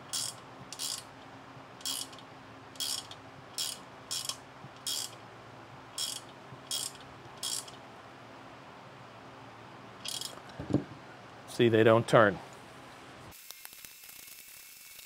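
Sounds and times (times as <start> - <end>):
socket ratchet wrench clicking: 0.1 - 1.1, 1.8 - 2.2, 2.8 - 5.2, 6.0 - 7.8, 10.0 - 10.4.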